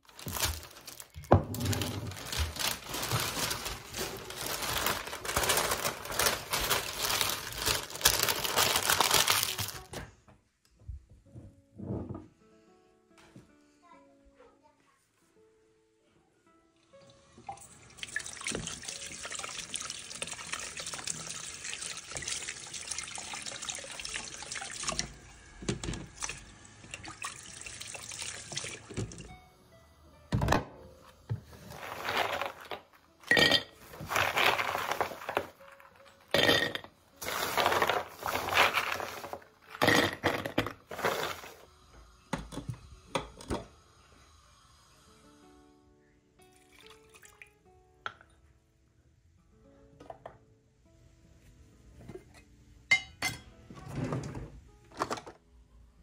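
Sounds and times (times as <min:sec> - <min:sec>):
tap water running into sink: 0:17.4 - 0:29.3.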